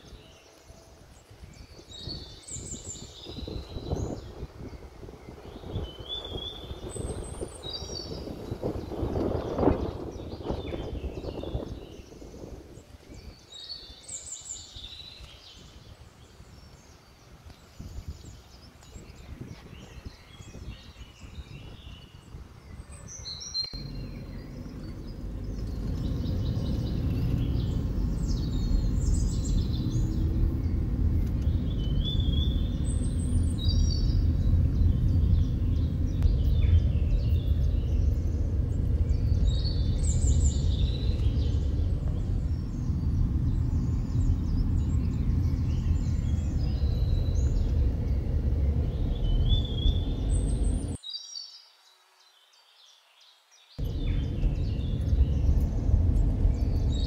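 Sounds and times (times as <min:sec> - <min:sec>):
songbirds chirping and singing: 0:00.0 - 0:57.0
car rumble from inside cabin: 0:23.8 - 0:51.0, 0:53.8 - 0:57.0.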